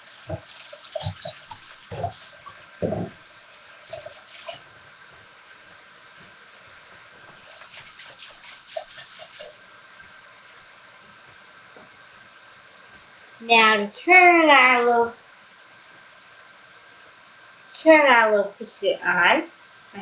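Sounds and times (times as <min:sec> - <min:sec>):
faucet running into sink: 0:00.0 - 0:04.6, 0:07.4 - 0:09.6
loud dull thumps: 0:02.8 - 0:03.2.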